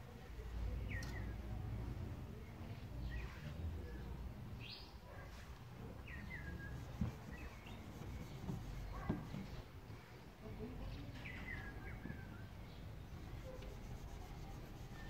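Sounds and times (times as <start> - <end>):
small birds chirping: 5.9 - 9.6.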